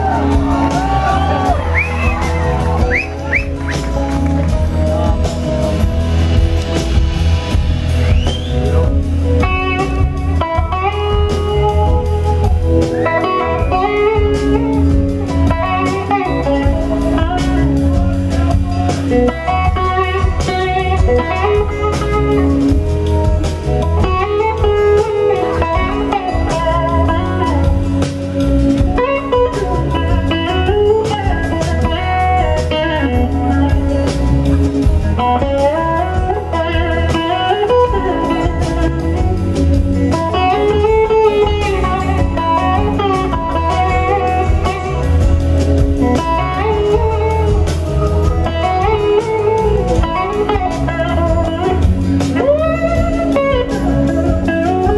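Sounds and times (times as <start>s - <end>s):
blues band playing: 0.0s - 54.9s
slide electric guitar solo: 0.0s - 54.9s.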